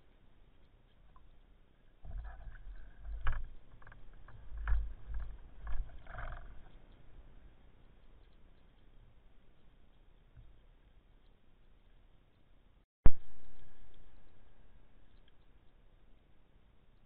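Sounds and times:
muffled underwater knocks and rumbling: 2.0s - 6.9s.

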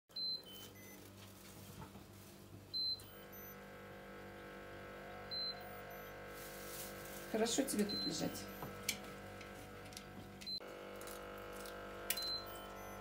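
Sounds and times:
refrigerator alarm beeping: 0.1s - 1.0s, 2.7s - 9.0s, 12.1s - 13.0s
low steady hum: 0.2s - 13.0s.

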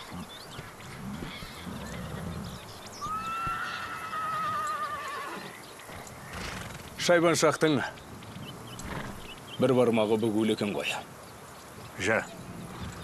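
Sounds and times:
horse whinnying: 3.0s - 5.6s.

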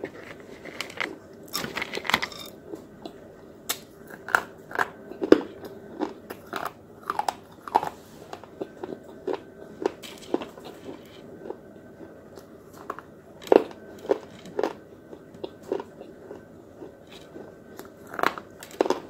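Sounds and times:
crisp crunches of chewing: 4.0s - 19.0s.

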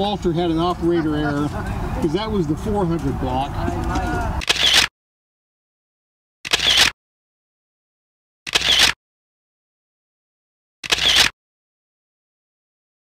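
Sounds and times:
camera shutter: 4.4s - 4.9s, 6.5s - 7.0s, 8.5s - 9.0s, 10.8s - 11.4s.

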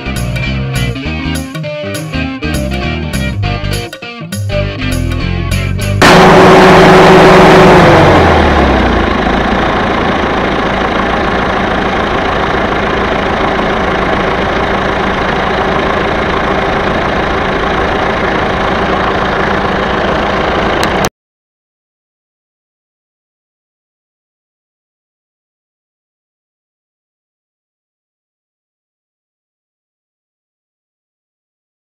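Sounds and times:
bulldozer diesel engine running: 4.8s - 21.1s.

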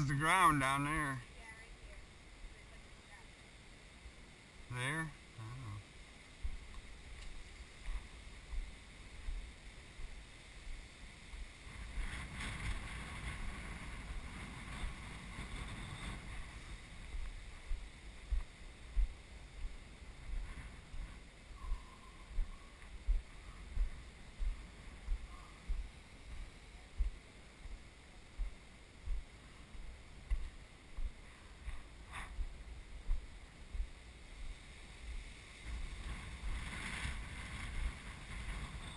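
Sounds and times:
wind on microphone: 6.4s - 27.8s, 28.4s - 38.9s
footsteps on boulders: 28.4s - 33.9s.

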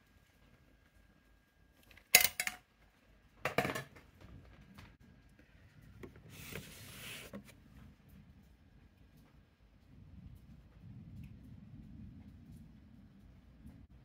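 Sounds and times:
scraping rustle: 6.1s - 7.6s.

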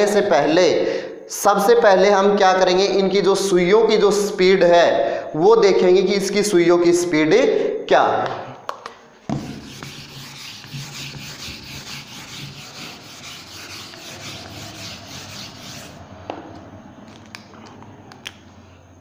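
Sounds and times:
eraser scrubbing a whiteboard: 9.3s - 16.1s.

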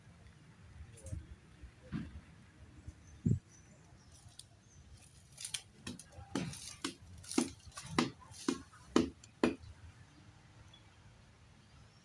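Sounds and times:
dry bamboo cracking and snapping: 4.1s - 9.5s.

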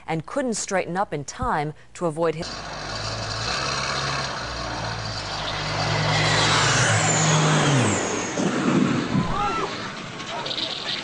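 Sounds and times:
engine droning passing by: 2.4s - 11.0s.

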